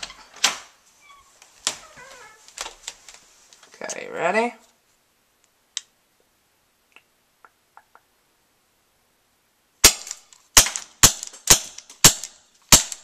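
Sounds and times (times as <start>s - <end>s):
airsoft pistol shots: 9.8s - 13.0s.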